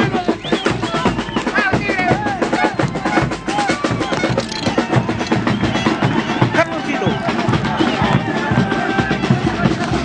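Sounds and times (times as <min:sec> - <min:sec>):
drums beating fast rhythm: 0:00.0 - 0:10.0
voices shouting: 0:00.0 - 0:10.0.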